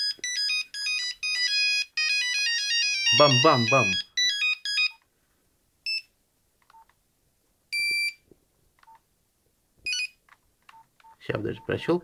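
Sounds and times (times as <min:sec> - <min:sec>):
monophonic phone ringtone: 0:00.0 - 0:05.0
phone beeps: 0:00.0 - 0:05.0, 0:07.7 - 0:08.2, 0:09.9 - 0:11.9.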